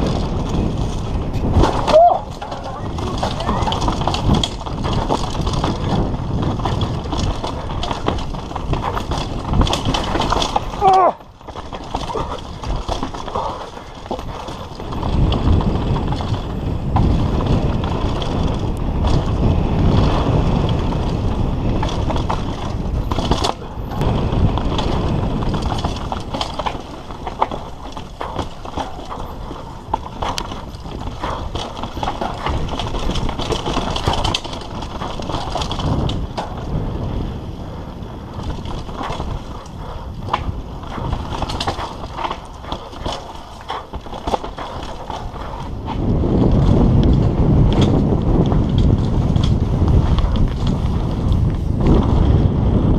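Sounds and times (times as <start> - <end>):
bike parts clattering: 0.0 - 36.8, 38.3 - 51.0
tyres crunching over dirt and stone: 0.0 - 37.5, 38.2 - 52.4
wind rumble on microphone: 0.0 - 52.9.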